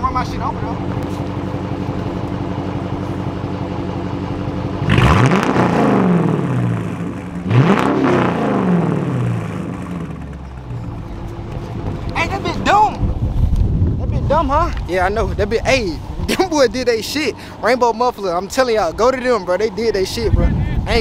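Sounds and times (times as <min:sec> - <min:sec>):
car engine idling: 0:00.0 - 0:21.0
car engine revving hard: 0:04.8 - 0:10.5.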